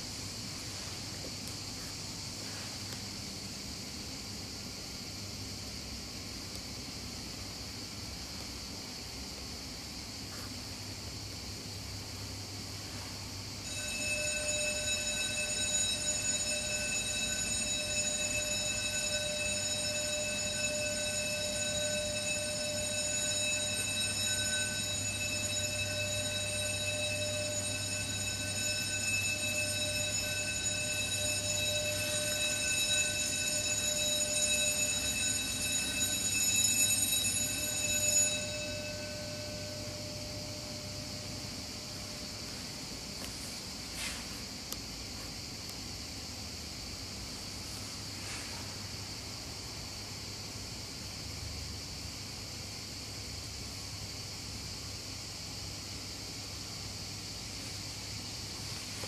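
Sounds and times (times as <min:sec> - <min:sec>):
steady ringing tone: 0:00.0 - 0:46.2.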